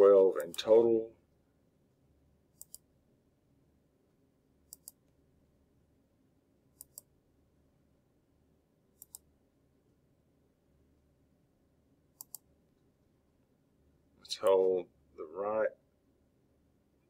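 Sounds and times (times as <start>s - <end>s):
computer mouse button clicking: 2.6s - 2.8s, 4.7s - 5.0s, 6.8s - 7.1s, 9.0s - 9.2s, 12.2s - 12.4s.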